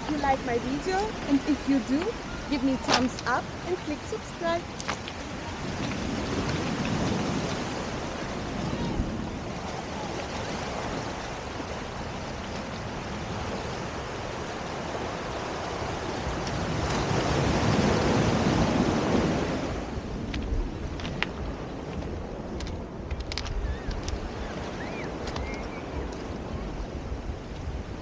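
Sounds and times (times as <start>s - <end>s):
ocean surf on beach: 0.0s - 28.0s.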